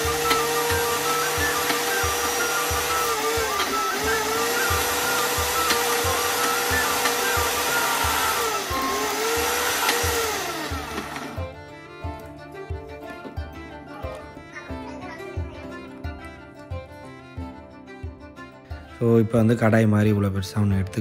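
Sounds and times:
mixer grinder motor whining: 0.0s - 14.7s.

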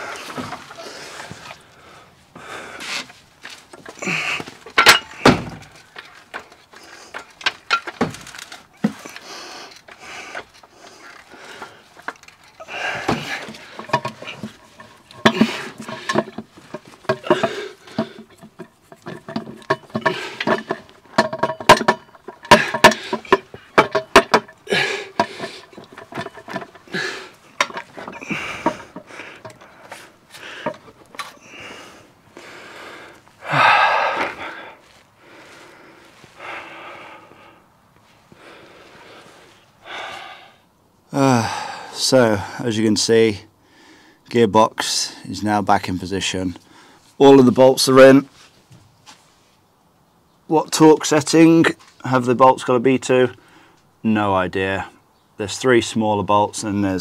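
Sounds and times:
metallic clunks and knocks: 3.7s - 9.0s, 12.0s - 30.0s, 30.6s - 31.4s
man grunting with effort: 4.0s - 4.5s, 24.6s - 25.2s, 33.4s - 34.6s, 41.1s - 42.0s.

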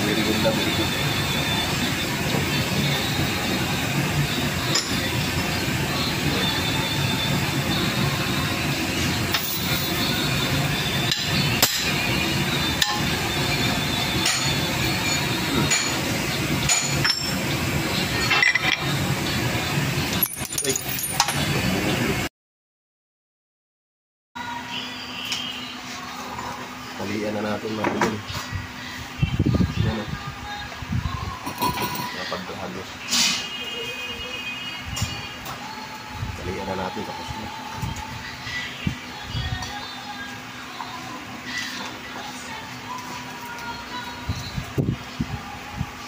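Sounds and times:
workshop hum: 0.0s - 22.3s, 24.4s - 46.0s
metal clinks and knocks: 20.2s - 21.5s.

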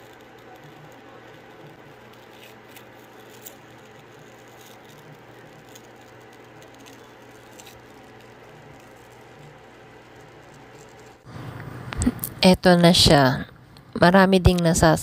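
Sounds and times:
pore strip peeling crackles: 0.0s - 11.3s.

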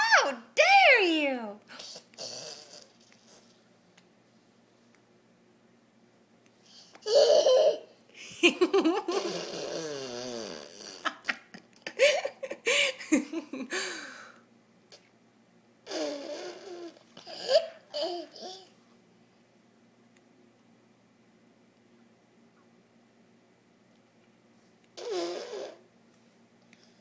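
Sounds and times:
toddler laughing and giggling: 6.9s - 10.2s, 16.0s - 18.8s.

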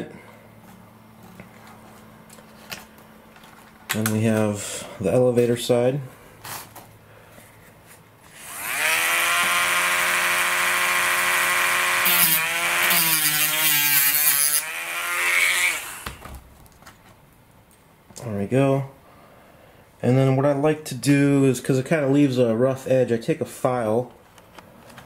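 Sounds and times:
rotary tool high whine: 8.2s - 16.2s.

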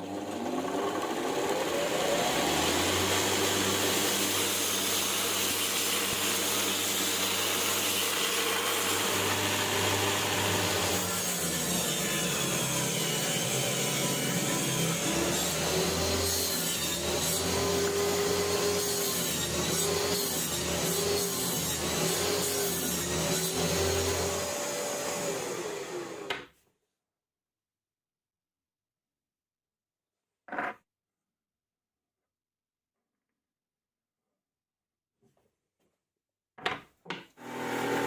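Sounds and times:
belt grinder motor whine: 8.1s - 26.3s, 37.4s - 38.0s.

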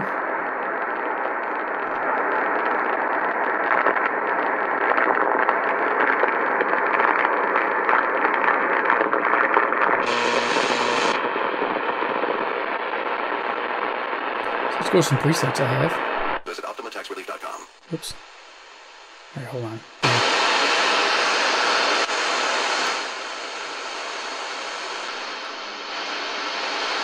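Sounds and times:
radio static hiss: 0.0s - 27.0s
harsh burst of radio noise: 10.0s - 11.5s, 14.3s - 18.5s, 19.4s - 27.0s.

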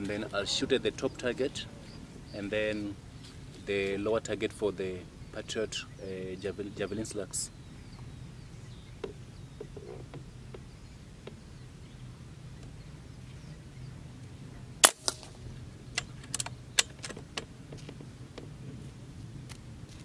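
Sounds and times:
air rifle shot crack: 14.8s - 15.4s.

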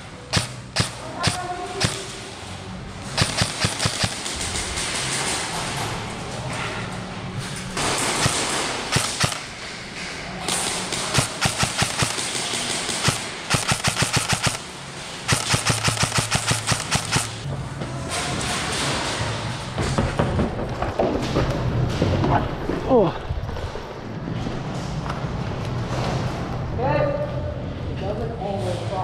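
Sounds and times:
airsoft guns firing: 0.2s - 2.3s, 3.2s - 5.6s, 7.8s - 9.6s, 10.4s - 17.5s.

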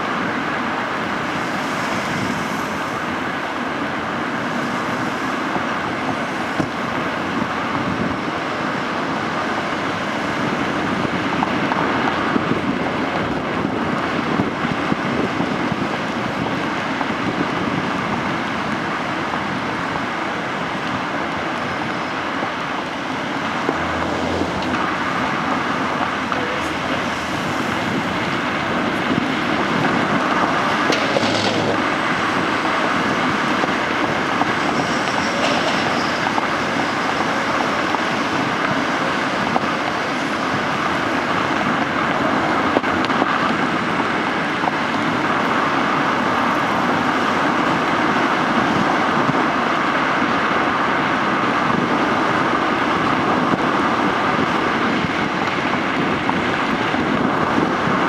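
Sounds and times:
tyres and passing traffic hiss: 0.0s - 58.0s
brief high squeal: 34.7s - 37.1s.

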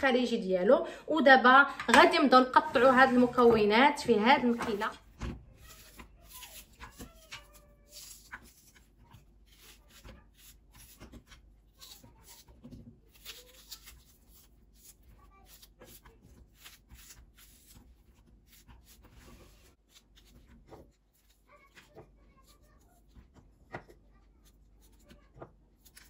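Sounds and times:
knife crunching through onion: 5.5s - 19.1s.

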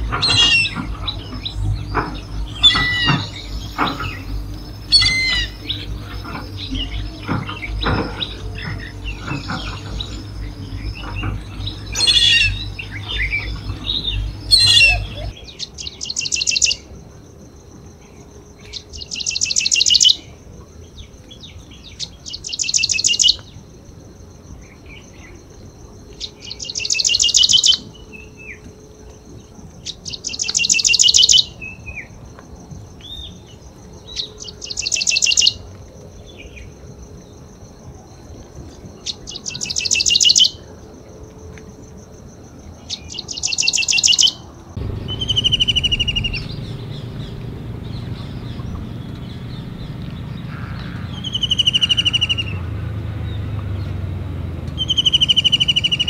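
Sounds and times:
low rumble: 0.0s - 15.8s, 44.5s - 56.0s
bird singing rapid trill: 0.0s - 16.9s, 18.0s - 23.7s, 26.1s - 28.6s, 29.4s - 32.2s, 33.0s - 37.4s, 38.8s - 40.7s, 42.8s - 54.1s, 54.7s - 56.0s
other bird calls: 0.0s - 16.9s, 29.8s - 32.1s, 42.9s - 53.9s, 54.7s - 56.0s
high insect drone: 0.0s - 56.0s.

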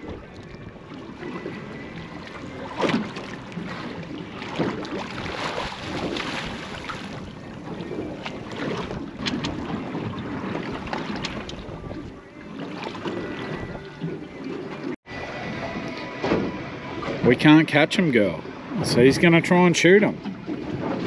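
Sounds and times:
wind on microphone: 0.0s - 17.5s
waves lapping against boat hull: 0.0s - 21.0s.

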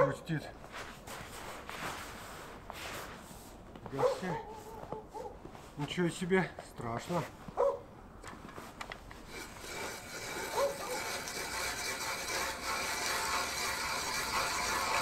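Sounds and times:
ice auger grinding through ice: 9.2s - 15.0s.

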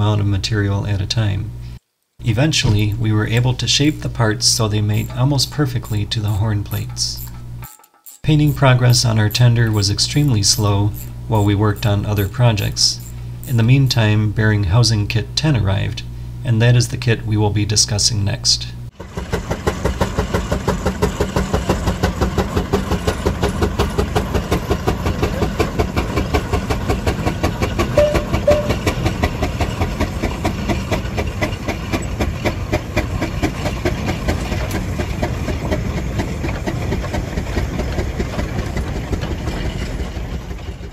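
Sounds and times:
steam engine exhaust beating: 19.0s - 40.5s.

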